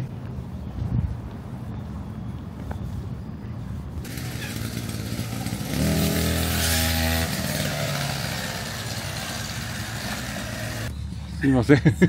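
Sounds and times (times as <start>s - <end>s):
brush cutter engine running: 4.0s - 10.9s.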